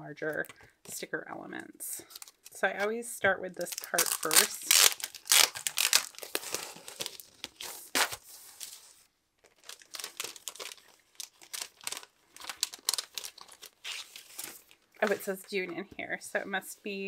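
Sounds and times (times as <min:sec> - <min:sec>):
plastic sleeve crinkling: 0:02.0 - 0:02.9, 0:03.5 - 0:15.4.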